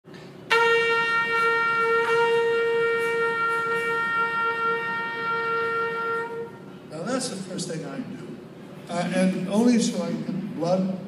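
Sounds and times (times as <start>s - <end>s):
trumpet long held note: 0.5s - 6.9s.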